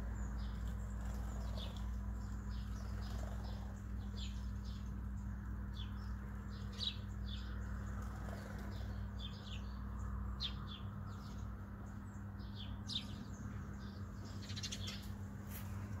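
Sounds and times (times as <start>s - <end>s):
bird chirps: 0.1s - 15.2s.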